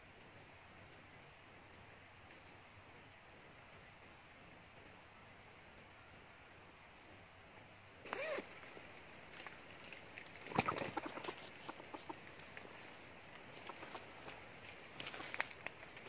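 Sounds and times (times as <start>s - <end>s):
dry leaves crackling: 8.1s - 16.0s.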